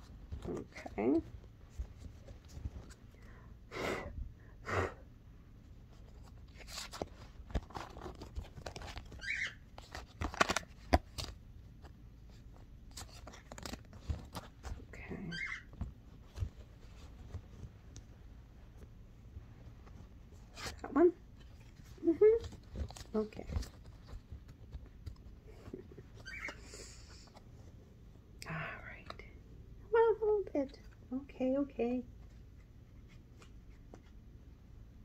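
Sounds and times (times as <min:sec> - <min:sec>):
cards rustling and clicking: 0:05.9 - 0:14.9, 0:19.8 - 0:27.6.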